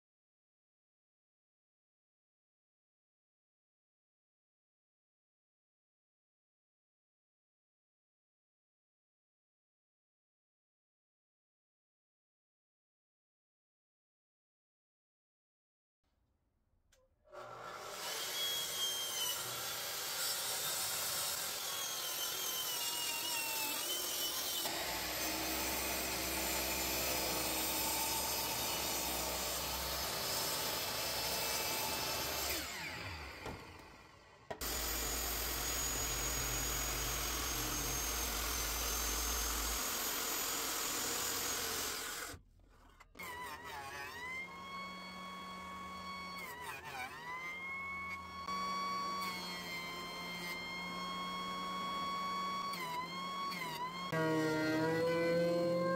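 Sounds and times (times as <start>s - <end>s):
circular saw cutting wood: 17.3s - 55.9s
miter saw cutting: 17.3s - 55.9s.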